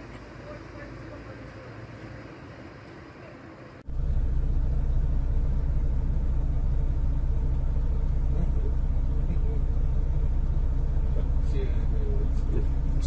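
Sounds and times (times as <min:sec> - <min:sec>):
vehicle engine rumble: 0:00.0 - 0:13.0.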